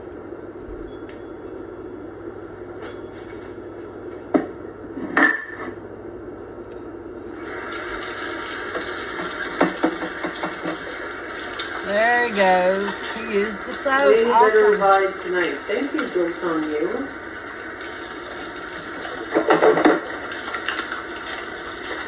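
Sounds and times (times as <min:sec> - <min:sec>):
low steady hum: 0:00.0 - 0:08.6, 0:10.8 - 0:22.0
tap water running into sink: 0:07.4 - 0:22.0.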